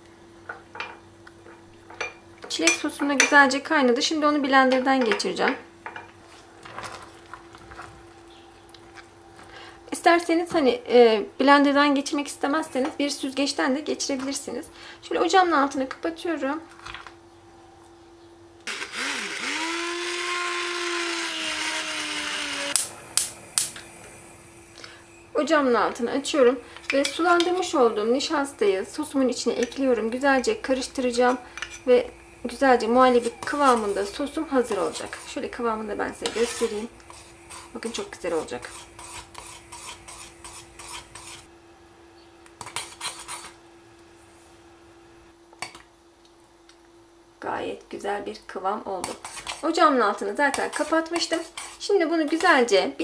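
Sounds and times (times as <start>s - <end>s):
hand blender motor whine: 18.6s - 22.9s
metal spoon scraping a saucepan: 31.1s - 32.0s, 33.1s - 41.5s, 42.6s - 43.6s, 49.0s - 49.8s, 50.5s - 51.9s.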